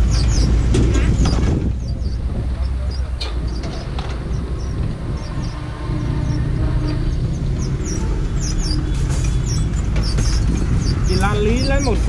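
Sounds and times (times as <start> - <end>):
vehicle engine hum: 0.0 - 12.0.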